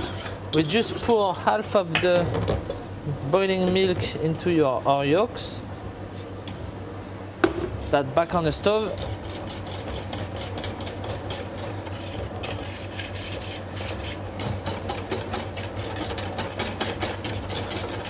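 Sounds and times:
steady low hum: 0.0s - 18.0s
whisk clicking on metal bowl: 8.6s - 18.0s.

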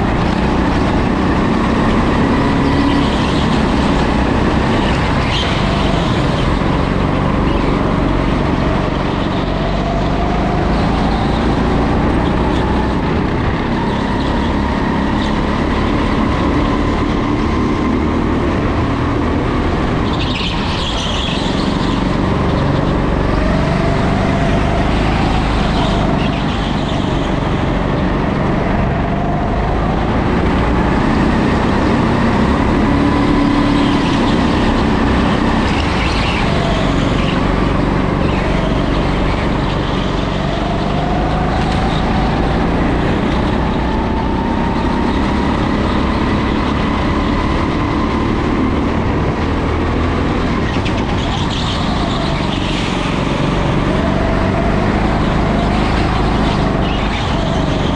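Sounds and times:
go-kart engine accelerating: 0.0s - 57.9s.

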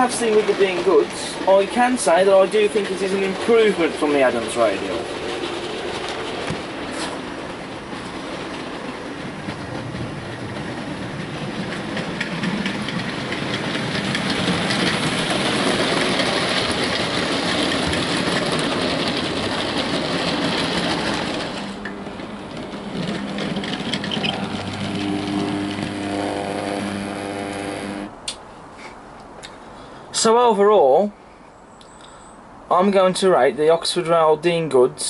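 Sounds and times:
model train rattling on track: 0.0s - 28.3s.

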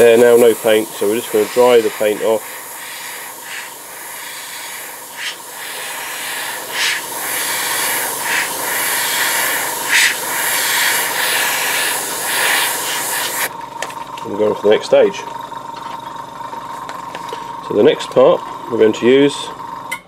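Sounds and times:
airbrush hissing air: 0.0s - 13.5s.

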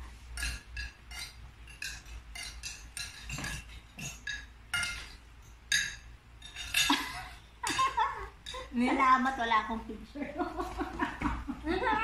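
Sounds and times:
cutlery clinking on plates: 0.0s - 8.7s.

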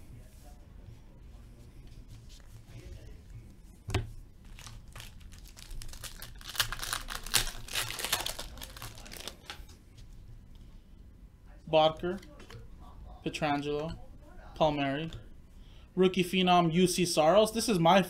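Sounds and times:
wrapper tearing and crinkling: 4.4s - 9.6s.

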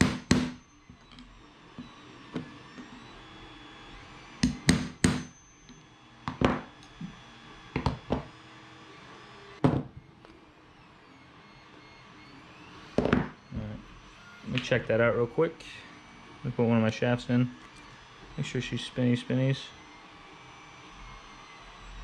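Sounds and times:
hammer tapping metal punch: 0.0s - 0.6s, 4.4s - 5.3s.

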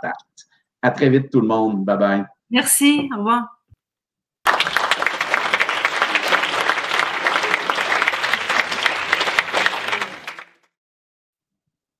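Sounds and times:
crowd applauding: 4.5s - 10.8s.

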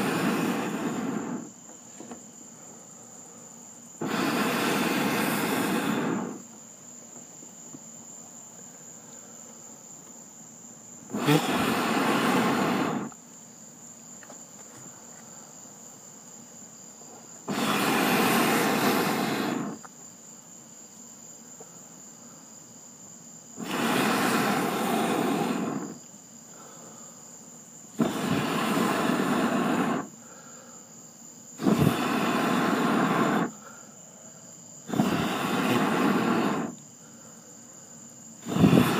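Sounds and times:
man blowing on charcoal: 0.0s - 6.5s, 11.0s - 13.2s, 17.1s - 19.9s, 23.5s - 27.2s, 27.9s - 30.9s, 31.5s - 38.9s
crickets chirring: 0.0s - 38.9s.

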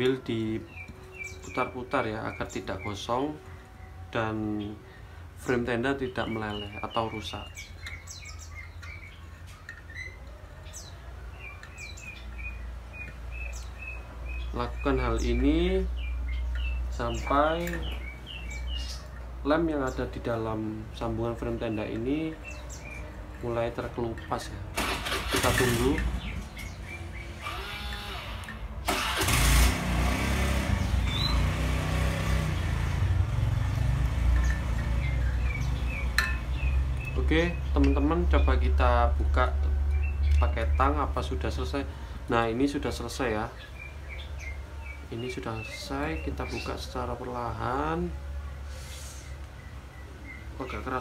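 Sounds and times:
small birds chirping: 0.0s - 51.0s
engine running with low rumble: 22.2s - 42.3s.

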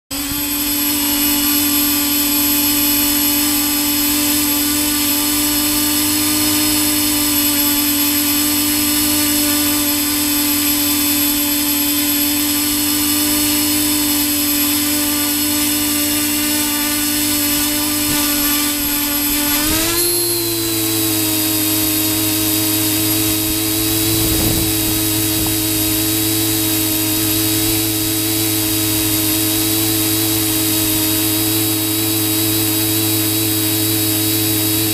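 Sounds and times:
drone motors and propellers whining: 0.1s - 34.9s.

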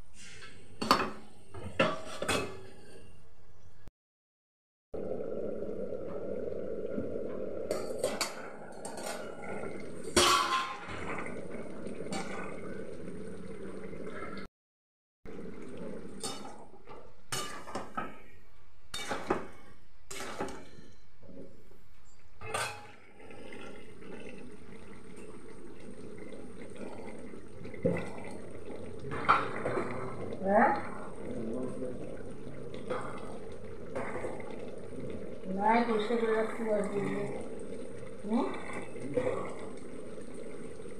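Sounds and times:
pan simmering: 5.0s - 14.5s, 15.3s - 40.9s
metal spatula scraping wok: 20.1s - 21.0s.

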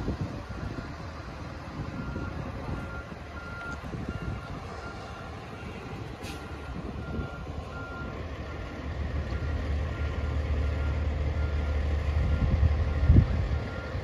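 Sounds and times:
truck engine running: 0.0s - 14.0s
reverse alarm beeping: 6.4s - 14.0s.

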